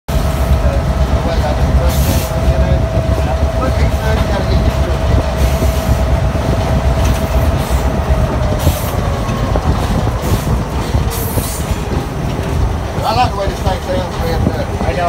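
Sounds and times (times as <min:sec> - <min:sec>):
diesel locomotive engine rumbling: 0:00.1 - 0:15.0
steady whine: 0:00.1 - 0:15.0
steel wheels clicking over rail joints: 0:00.1 - 0:15.0.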